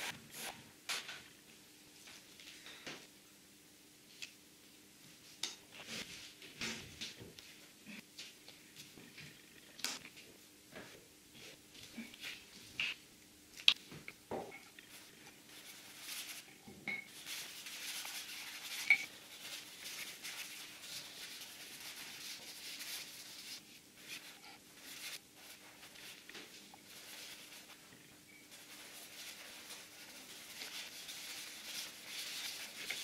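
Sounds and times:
brush scrubbing paint on board: 0:17.1 - 0:26.3, 0:28.5 - 0:33.0.

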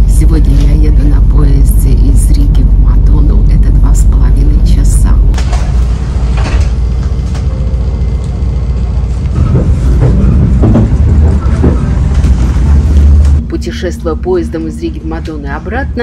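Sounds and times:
train carriage rumble: 0:00.0 - 0:16.0
faint knocks and clatters: 0:09.4 - 0:13.4.

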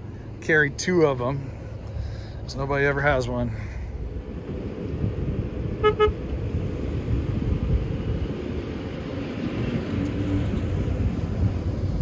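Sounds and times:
car engine running: 0:00.0 - 0:12.0
wind rumble on microphone: 0:03.9 - 0:12.0
car horn toots: 0:05.8 - 0:06.3.

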